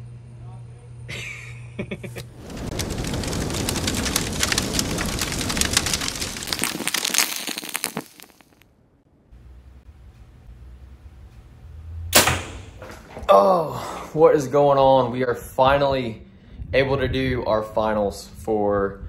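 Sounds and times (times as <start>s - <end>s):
fire crackling: 2.1s - 10.2s, 12.2s - 16.9s.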